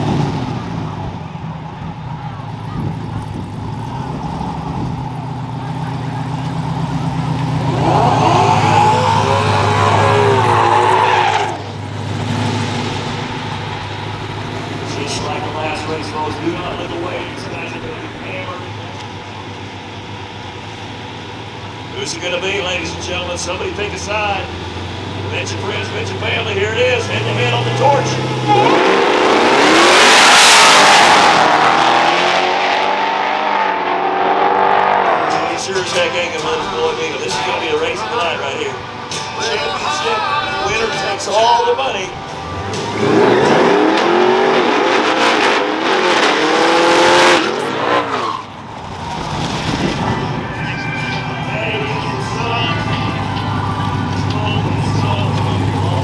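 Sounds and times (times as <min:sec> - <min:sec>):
drag car engine revving: 0:00.0 - 0:56.0
tyres squealing: 0:07.6 - 0:11.8.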